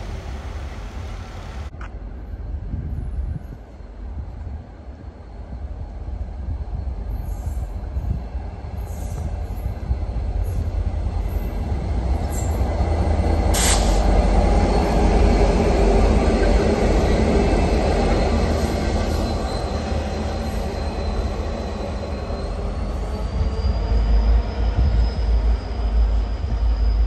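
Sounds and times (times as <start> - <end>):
wheels squealing on rails: 6.8 - 27.0.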